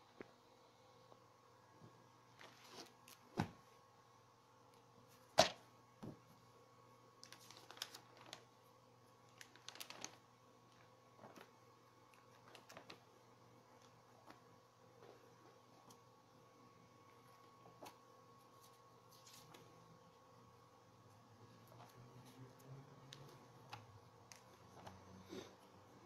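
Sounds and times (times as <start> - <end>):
faint steady hum: 0.0 - 26.0
paper pages rustling: 2.3 - 3.5, 7.2 - 8.6, 9.3 - 13.2, 17.7 - 19.8.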